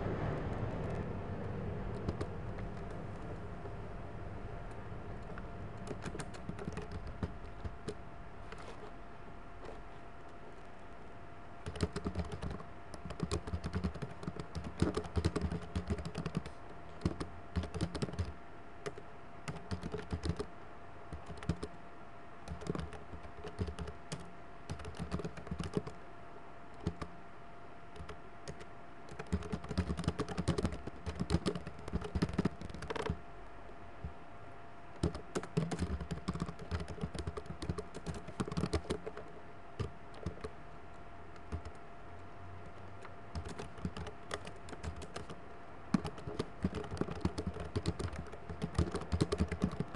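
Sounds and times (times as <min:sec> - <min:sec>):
faint steady hum: 0:00.0 - 0:49.9
typing on keyboard: 0:01.9 - 0:03.3, 0:04.7 - 0:08.7, 0:11.6 - 0:20.5, 0:21.1 - 0:21.8, 0:22.4 - 0:26.0, 0:26.7 - 0:27.1, 0:27.9 - 0:33.2, 0:35.0 - 0:40.5, 0:41.3 - 0:41.8, 0:42.6 - 0:49.9.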